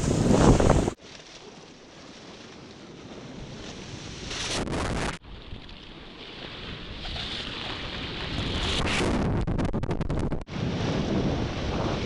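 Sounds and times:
wave breaking and whitewater rushing: 0.0 - 9.1
water splashing: 5.6 - 8.8.

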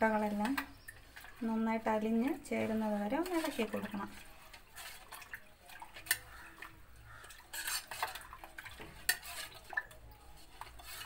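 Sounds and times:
spoon stirring in a steel saucepan: 0.0 - 11.0.

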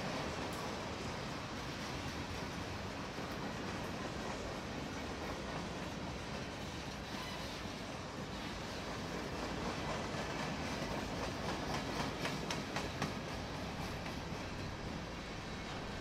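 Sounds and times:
freight train cars rumbling past: 0.0 - 16.0
wheels clicking over rail joints: 8.8 - 16.0.

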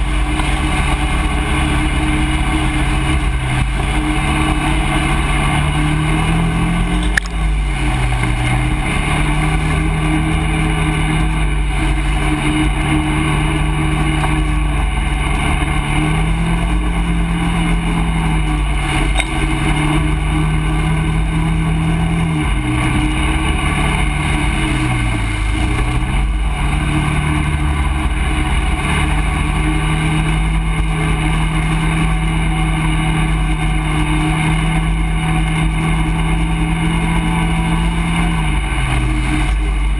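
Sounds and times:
quad engine running: 0.0 - 39.9.

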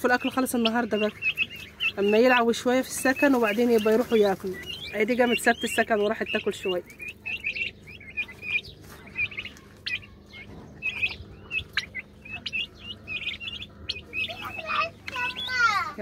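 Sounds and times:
turkey poults peeping: 0.0 - 16.0.

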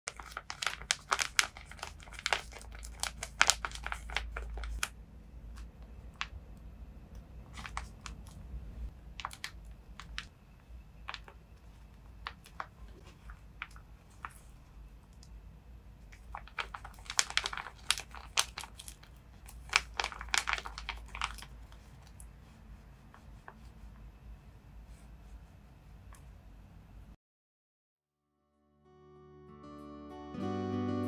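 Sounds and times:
plastic squishy crinkling: 0.1 - 6.4, 7.4 - 8.4, 9.0 - 10.4, 11.0 - 15.4, 16.0 - 23.9.

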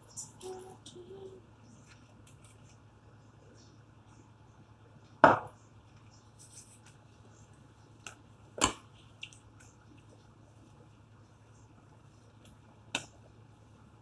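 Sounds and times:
knocks on countertop: 5.2 - 5.5.

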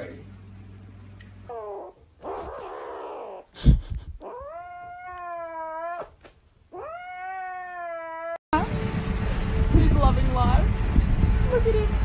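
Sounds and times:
kitten yowling: 4.2 - 8.4.

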